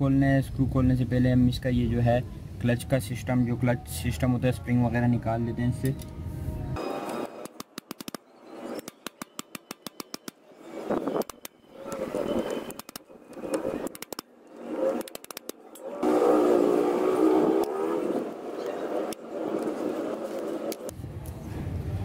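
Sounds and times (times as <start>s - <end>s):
raspy screw turning: 11.2s - 15.9s.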